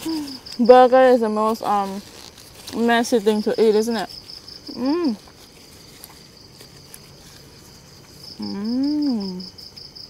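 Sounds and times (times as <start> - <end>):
night insects trilling: 0.0 - 10.0
woman humming while chewing: 8.4 - 9.6.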